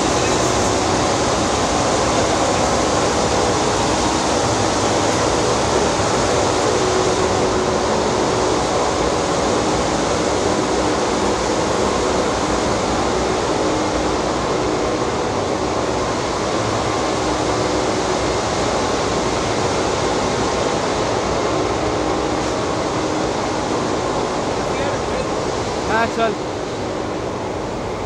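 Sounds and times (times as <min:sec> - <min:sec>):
faint hum: 0:00.0 - 0:05.9
rushing water: 0:00.0 - 0:28.0.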